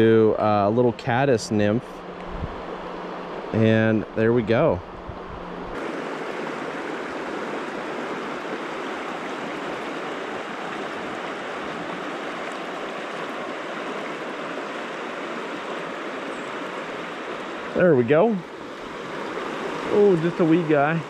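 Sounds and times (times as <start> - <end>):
river rushing over rocks: 5.8 - 21.0.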